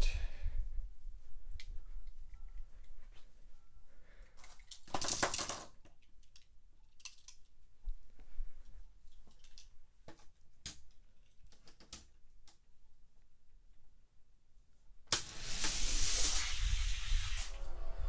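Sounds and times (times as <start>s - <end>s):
toy cars clicking and clinking: 4.4s - 7.4s.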